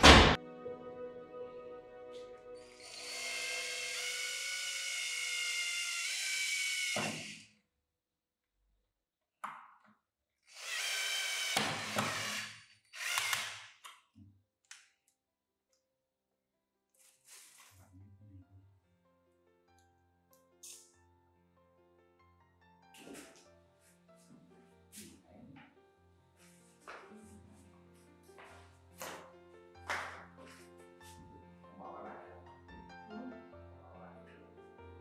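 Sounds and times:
cordless drill whining: 0:02.6 - 0:07.5, 0:10.4 - 0:13.8.

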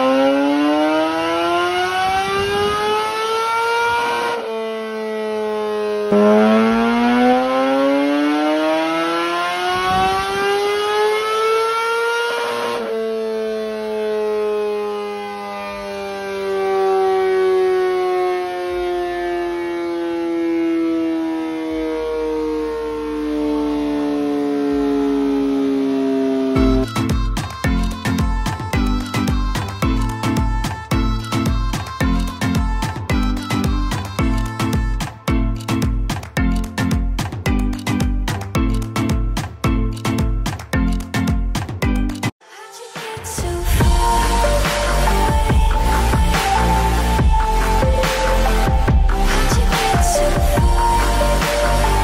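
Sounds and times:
motorcycle engine revving on dyno: 0:06.1 - 0:13.4.

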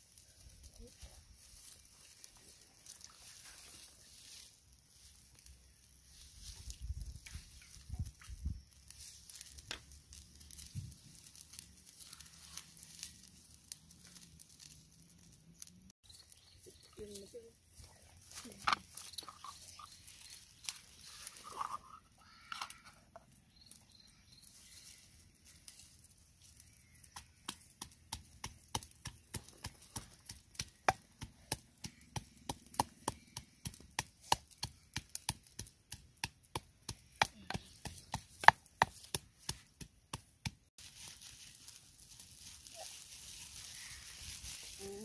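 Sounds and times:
water boiling hiss: 0:40.8 - 0:45.0.

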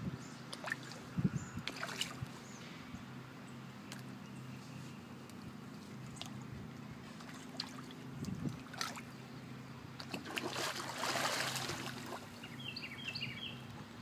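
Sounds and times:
steady low hum: 0:00.0 - 0:14.0
dog sloshing through water: 0:10.0 - 0:12.4
loud water splash: 0:10.1 - 0:12.2.

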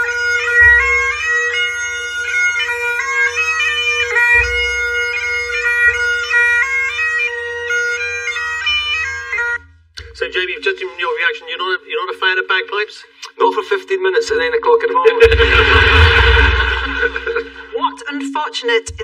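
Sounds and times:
bagpipes playing over a drone: 0:00.0 - 0:09.6.

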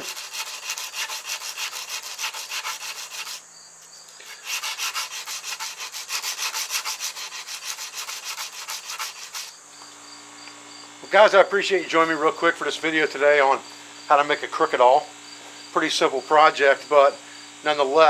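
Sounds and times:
metal scraping on sandpaper: 0:00.0 - 0:03.4, 0:04.2 - 0:09.6.

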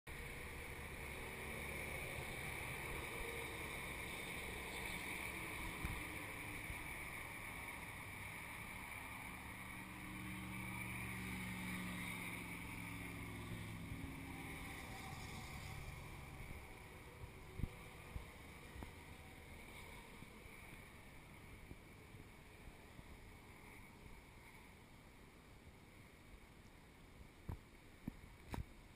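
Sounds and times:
low traffic rumble: 0:00.1 - 0:28.9
vehicle engine drone: 0:00.1 - 0:28.9
wind on microphone: 0:13.8 - 0:20.7.

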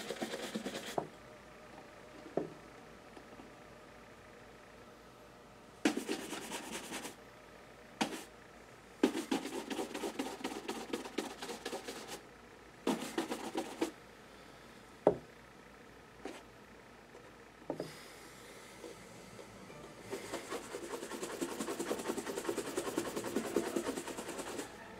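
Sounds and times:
brush buffing a shoe: 0:00.0 - 0:01.0, 0:05.9 - 0:07.2, 0:09.0 - 0:12.2, 0:12.9 - 0:13.9, 0:20.1 - 0:24.8.

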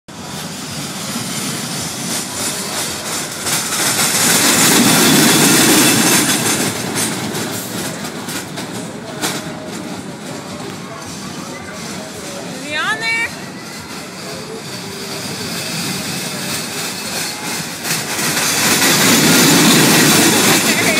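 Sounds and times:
roller coaster wheels rumbling on rails: 0:00.1 - 0:20.9.

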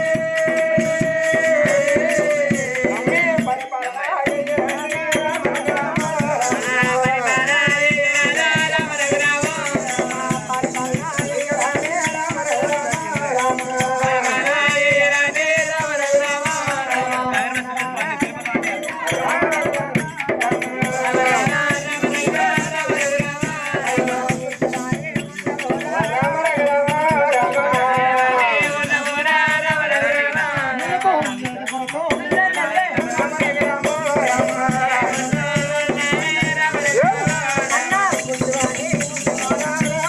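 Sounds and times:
drum strokes: 0:00.0 - 0:40.0
metallic jingle of rattling percussion: 0:00.0 - 0:40.0
voices singing a chanted melody: 0:00.0 - 0:40.0.

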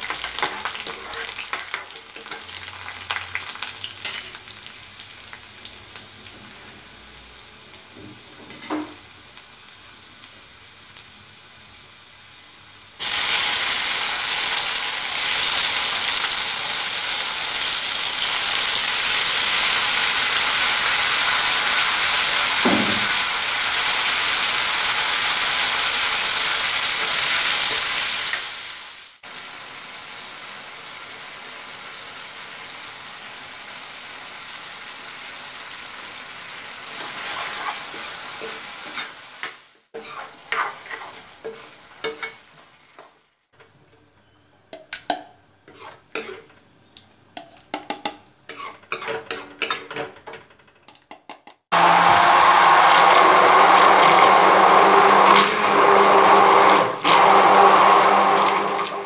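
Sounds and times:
tomatoes sizzling in a wok: 0:00.0 - 0:43.5, 0:44.2 - 0:46.8, 0:47.4 - 0:50.0, 0:51.7 - 0:59.0
metal spoon scraping wok: 0:37.0 - 0:39.3, 0:40.0 - 0:42.4, 0:45.0 - 0:46.6, 0:48.5 - 0:50.0
hand blender whirring: 0:51.7 - 0:59.0.

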